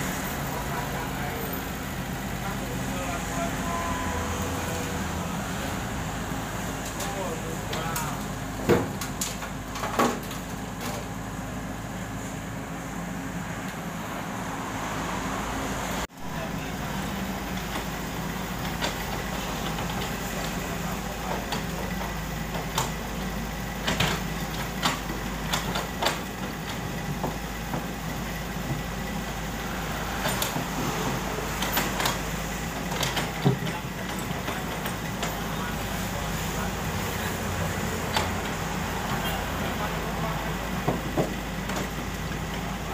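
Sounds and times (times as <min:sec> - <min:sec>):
excavator diesel engine running: 0:00.0 - 0:42.9.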